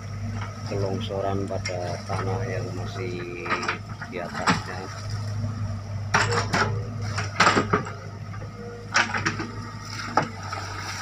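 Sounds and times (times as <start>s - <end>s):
diesel engine running: 0.0s - 11.0s
sharp knocks and clatters: 6.1s - 8.1s, 8.9s - 10.4s.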